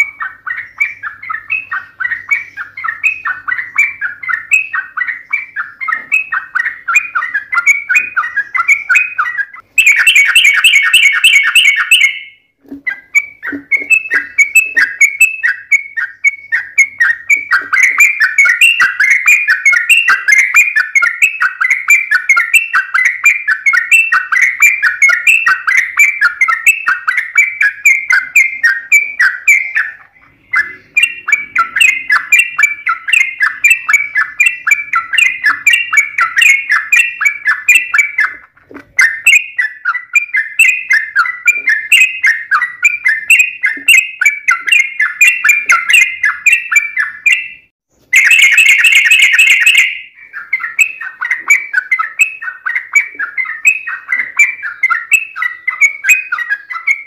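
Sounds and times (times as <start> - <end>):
bird chattering song: 0.0 - 57.0.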